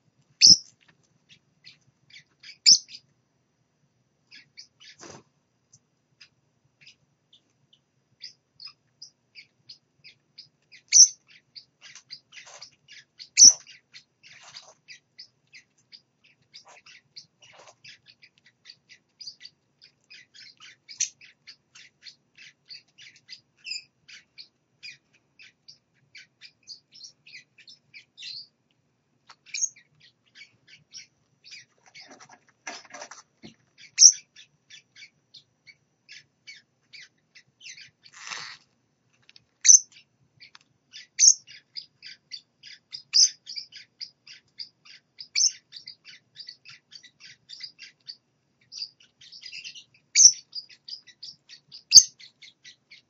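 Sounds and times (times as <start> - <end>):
parrot chicks peeping: 0.0 - 53.0.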